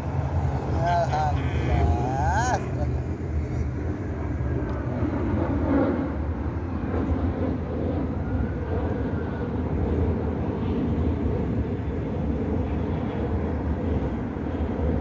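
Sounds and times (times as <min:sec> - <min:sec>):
low background rumble: 0:00.0 - 0:15.0.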